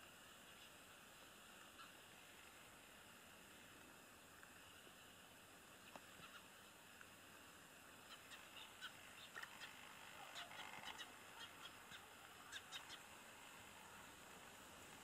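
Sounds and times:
faint outdoor hiss: 0:00.0 - 0:15.0
faint high-pitched chirps: 0:08.0 - 0:14.1.

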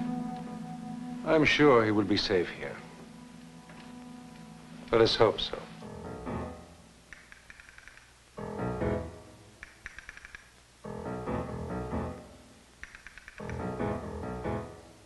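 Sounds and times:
low full musical phrase: 0:00.0 - 0:06.9.

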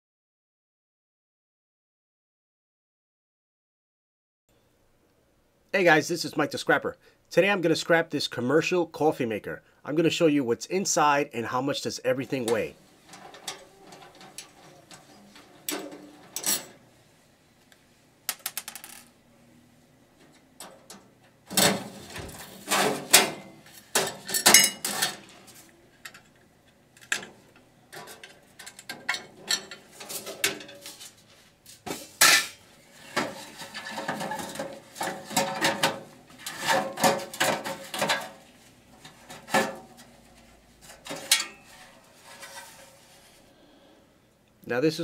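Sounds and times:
steel parts clanking and rattling: 0:12.4 - 0:16.8, 0:20.6 - 0:25.4, 0:27.1 - 0:31.0, 0:32.2 - 0:38.4, 0:40.8 - 0:42.9.

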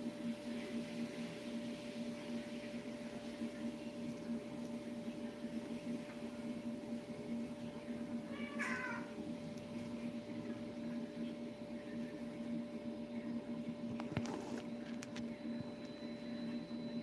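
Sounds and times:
steady low hum: 0:00.0 - 0:17.0
cat meowing: 0:08.3 - 0:09.1.

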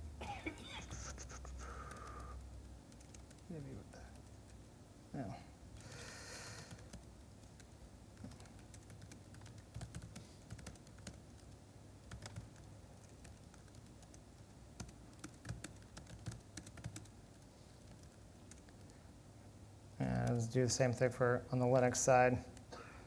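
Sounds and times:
keyboard typing: 0:00.8 - 0:04.6, 0:05.8 - 0:19.0.

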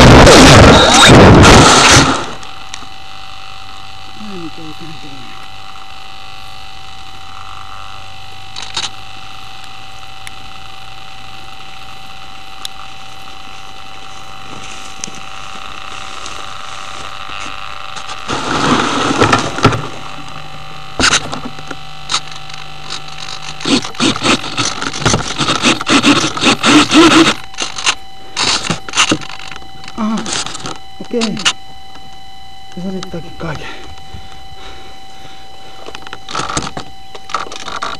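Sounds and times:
faint constant whine: 0:00.0 - 0:37.9
grass rustling against plane: 0:13.4 - 0:29.4.

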